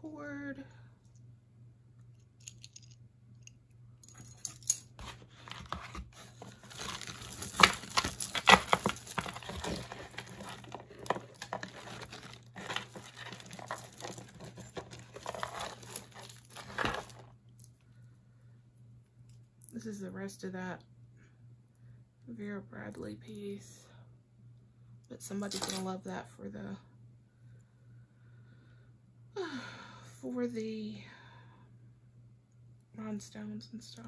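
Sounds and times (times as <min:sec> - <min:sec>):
hands rummaging through jewelry: 0:04.0 - 0:17.3, 0:25.4 - 0:25.9.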